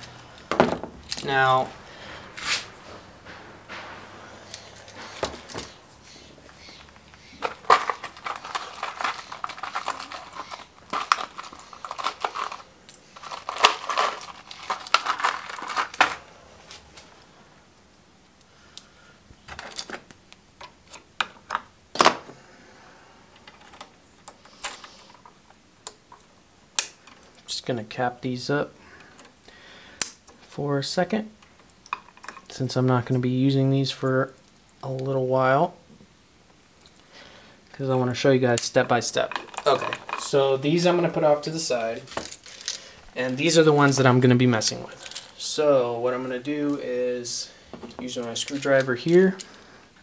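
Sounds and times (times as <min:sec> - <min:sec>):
handling wires and small parts: 0:00.0 - 0:22.4, 0:23.2 - 0:27.6, 0:29.0 - 0:33.3, 0:36.5 - 0:50.0.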